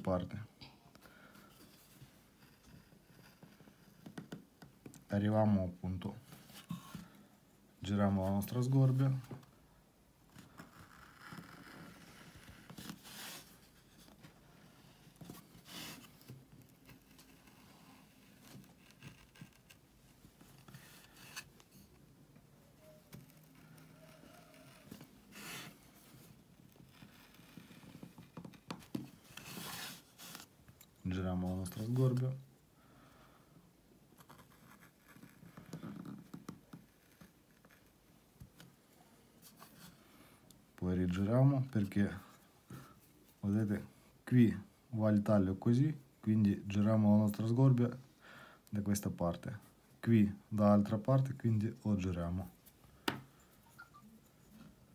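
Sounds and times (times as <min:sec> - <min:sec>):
carving gouge scraping wood: 0:02.4 - 0:04.3, 0:10.4 - 0:13.6, 0:15.1 - 0:19.8, 0:23.2 - 0:25.7
gouge scraping wood: 0:15.1 - 0:19.8.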